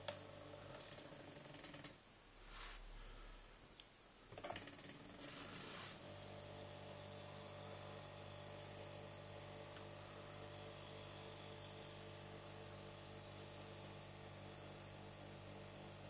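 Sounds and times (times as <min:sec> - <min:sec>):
short hiss: 0:02.4 - 0:03.4, 0:05.2 - 0:06.0.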